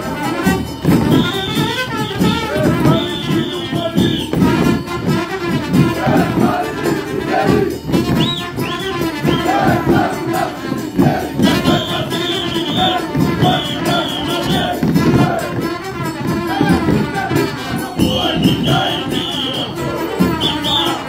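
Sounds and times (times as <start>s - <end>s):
lively folk dance music: 0.0s - 21.0s
short high notes: 8.2s - 15.5s, 17.5s - 21.0s.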